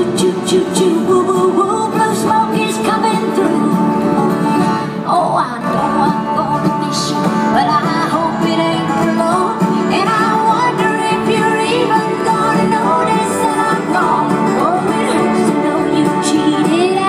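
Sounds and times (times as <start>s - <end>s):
guitar: 0.0s - 17.0s
live country band music: 0.0s - 17.0s.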